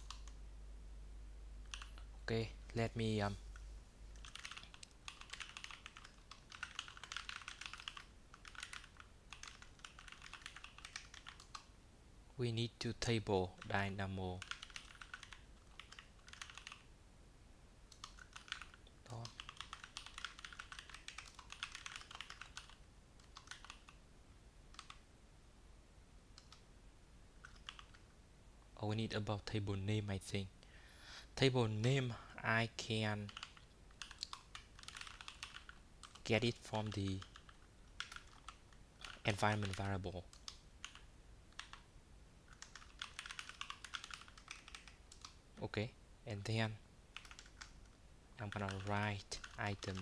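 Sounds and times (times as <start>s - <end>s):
keyboard typing: 0.0s - 0.4s, 1.6s - 2.1s, 4.2s - 11.7s, 14.4s - 16.9s, 17.9s - 24.0s, 24.7s - 25.0s, 27.4s - 28.0s, 33.2s - 41.9s, 42.5s - 45.4s, 47.1s - 50.0s.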